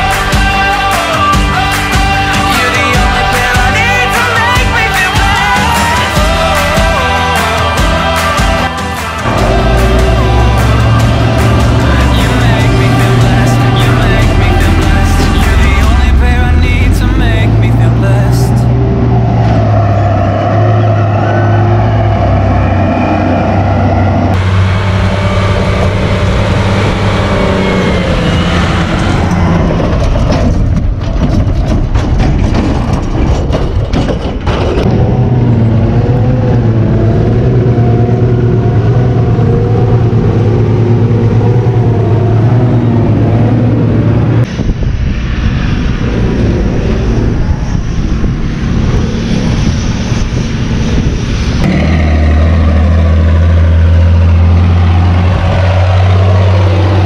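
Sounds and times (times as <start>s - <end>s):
forage harvester engine running: 0.0s - 19.7s
tractor diesel engine: 0.0s - 57.0s.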